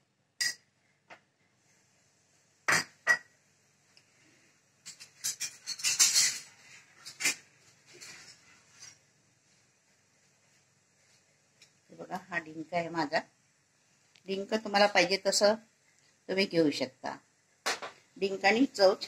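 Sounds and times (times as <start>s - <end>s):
metal spoon clinking on bowl: 0.4s - 0.6s.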